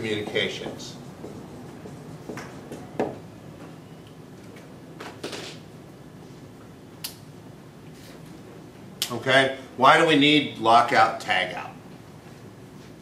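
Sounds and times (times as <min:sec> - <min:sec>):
marker scraping whiteboard: 0:00.1 - 0:02.9
marker knocking on whiteboard: 0:00.2 - 0:03.2.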